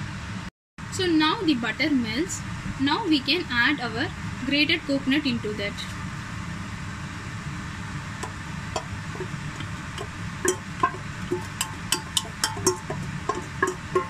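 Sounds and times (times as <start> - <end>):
steady low hum: 0.0 - 14.0
spatula clinking on bowl rim: 8.8 - 14.0
spatula scraping bowl: 8.8 - 14.0.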